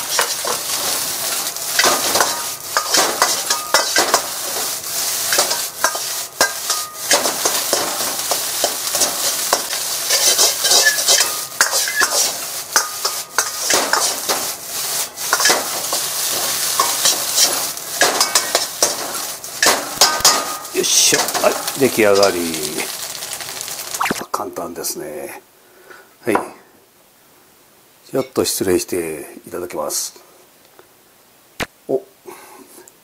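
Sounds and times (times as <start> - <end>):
ladle clinking on wok: 0.0 - 4.7, 5.3 - 14.5, 15.3 - 22.3
metal ladle scraping wok: 0.0 - 23.5
rice sizzling in a wok: 0.0 - 24.3.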